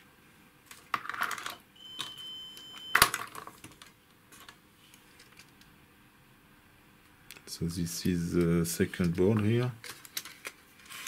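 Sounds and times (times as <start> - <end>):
continuity tester high beep: 1.8 - 3.0.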